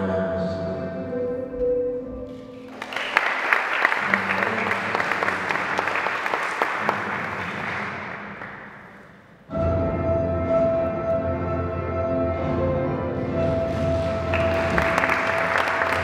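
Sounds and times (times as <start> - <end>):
audience applause: 2.6 - 9.1, 13.7 - 16.0
held music notes: 8.8 - 16.0.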